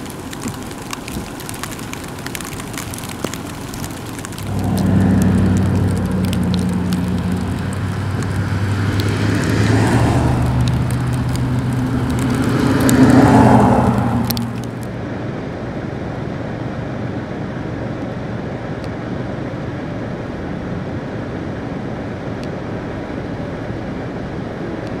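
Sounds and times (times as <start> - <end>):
pickup truck passing on slush: 0.0 - 15.0
steady rumble and hiss: 0.0 - 25.0.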